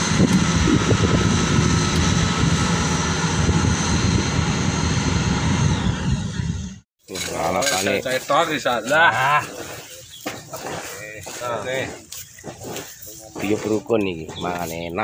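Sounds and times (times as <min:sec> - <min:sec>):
combine harvester engine drone: 0:00.0 - 0:06.8
high steady whining tones: 0:00.0 - 0:06.8.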